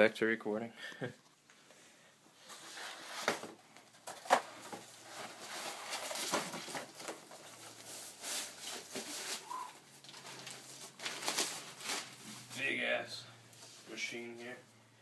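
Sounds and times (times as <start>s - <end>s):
packing sleeve rustling: 2.6s - 12.6s.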